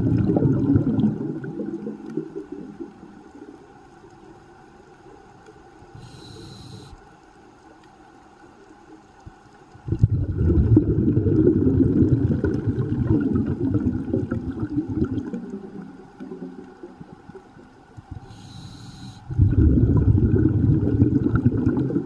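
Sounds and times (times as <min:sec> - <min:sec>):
rumble of exhaled bubbles: 0:00.0 - 0:03.7, 0:09.8 - 0:18.4, 0:19.3 - 0:22.0
regulator inhale hiss: 0:05.9 - 0:07.1, 0:18.1 - 0:19.4.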